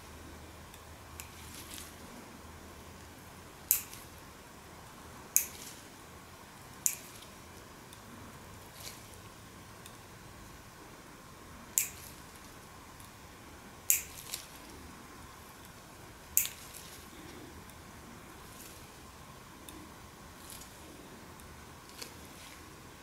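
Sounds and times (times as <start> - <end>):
faint steady hum: 0.0 - 23.0
nail cutter snipping: 13.9 - 14.4.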